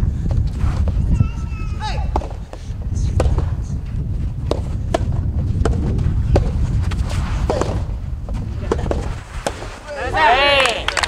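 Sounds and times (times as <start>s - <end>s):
low rumble: 0.0s - 9.4s
rackets hitting tennis ball: 2.0s - 3.7s, 4.4s - 9.9s.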